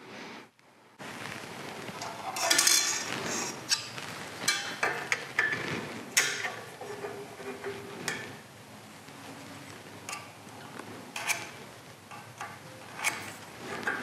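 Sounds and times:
metal clinking and scraping: 2.0 - 8.4.

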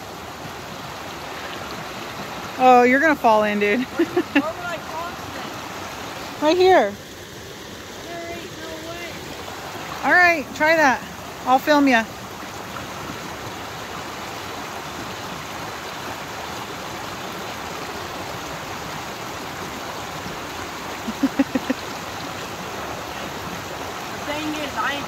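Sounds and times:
creek water rushing: 0.0 - 25.0.

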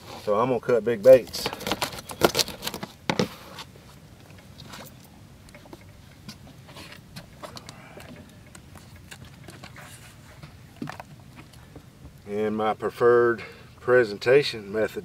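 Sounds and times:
fishing tackle clicks and knocks: 1.2 - 3.3, 10.4 - 12.2.

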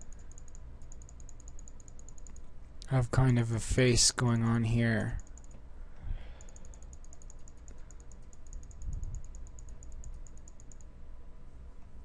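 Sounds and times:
rapid high ticking: 0.0 - 2.5, 5.2 - 5.6, 6.3 - 10.9
steady low hum: 0.0 - 12.0.

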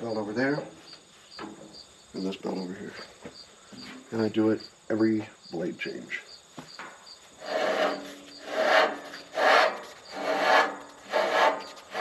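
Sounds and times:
rubber belt rasping on a wheel: 7.4 - 12.0.

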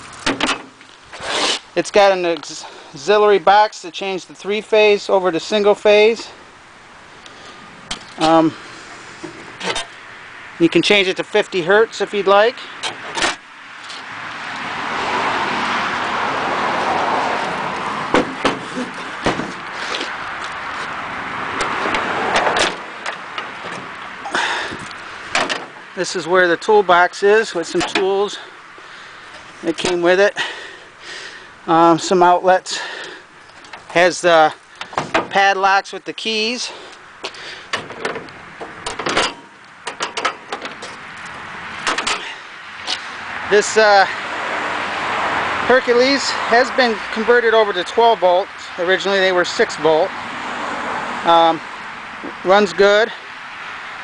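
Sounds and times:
car passing by: 13.8 - 25.3, 41.3 - 47.1, 50.0 - 52.2
metal clicks and clanks: 21.6 - 25.8, 37.7 - 42.3.

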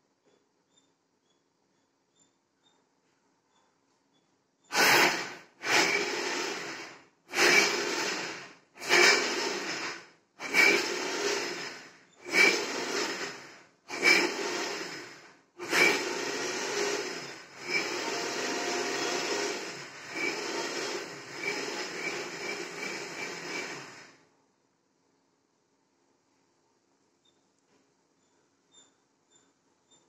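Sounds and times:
mixer grinder grinding: 4.7 - 24.2.

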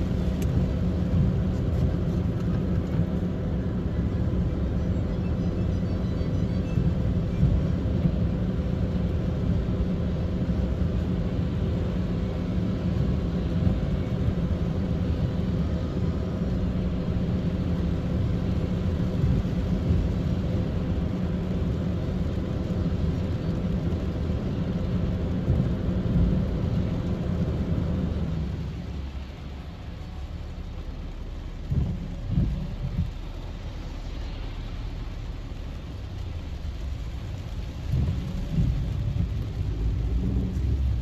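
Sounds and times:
engine and tyres rumbling: 0.0 - 41.0.

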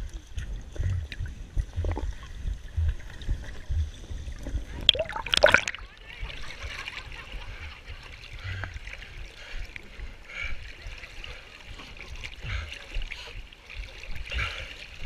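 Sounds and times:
low rumble: 0.0 - 6.1
water lapping around canoe: 0.0 - 15.0.

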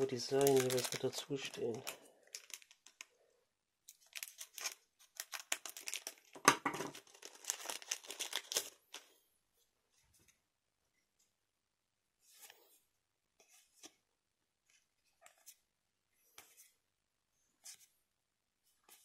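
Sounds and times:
foil pack crinkling: 0.0 - 3.1, 3.9 - 9.0.

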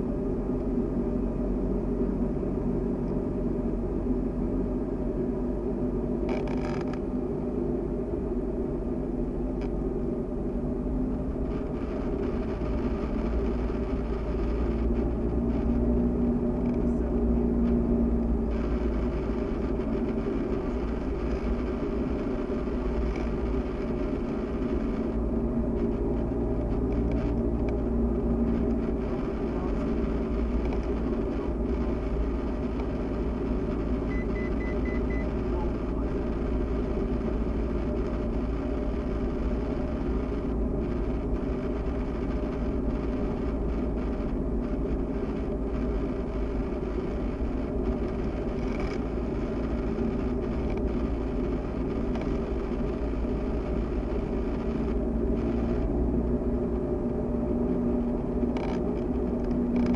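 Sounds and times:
light aircraft engine and propeller: 0.0 - 59.9
high beeps: 34.0 - 35.4.

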